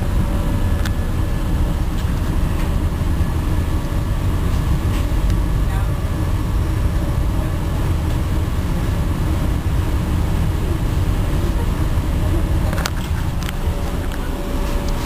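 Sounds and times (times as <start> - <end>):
low rumble inside train car: 0.0 - 15.0.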